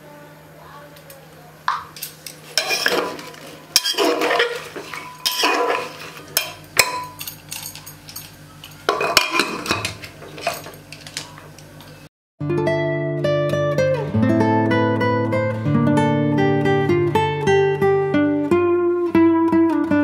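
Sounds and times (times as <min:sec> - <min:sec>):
spoon scraping metal pot: 0:02.0 - 0:10.7
acoustic guitar music: 0:12.4 - 0:20.0.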